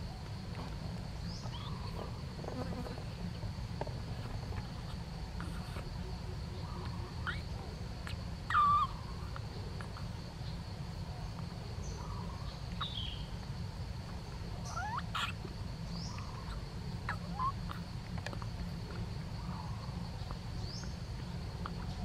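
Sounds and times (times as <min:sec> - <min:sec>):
low steady hum: 0:00.0 - 0:22.0
gibbon squeaking: 0:08.5 - 0:09.0, 0:14.7 - 0:15.4.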